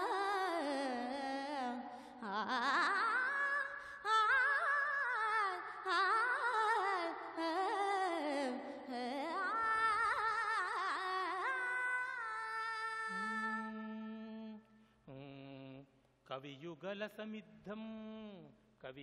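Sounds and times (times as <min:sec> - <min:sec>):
woman singing melodic recitation: 0:00.0 - 0:14.6.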